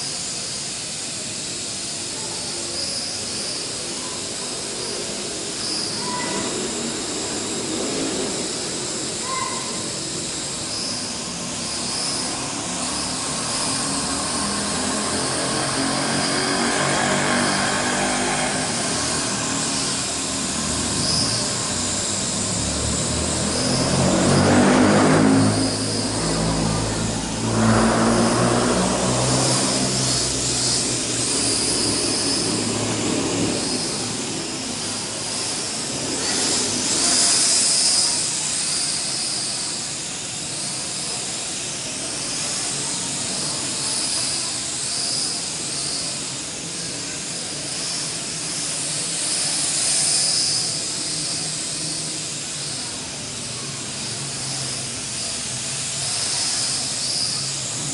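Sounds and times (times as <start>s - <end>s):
quadcopter propellers whirring: 0.0s - 57.9s.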